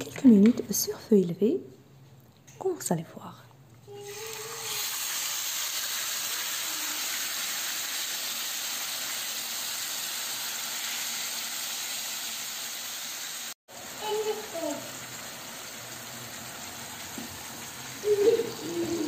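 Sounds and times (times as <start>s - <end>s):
meat sizzling in oil: 3.9s - 19.0s.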